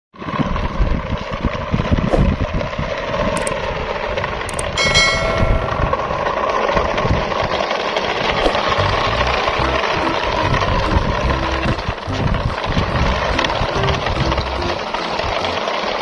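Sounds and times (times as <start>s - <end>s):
toy truck rolling on asphalt: 0.2s - 16.0s
sharp clicks: 3.4s - 3.6s, 4.5s - 4.8s
bell-like chime: 4.8s - 6.1s.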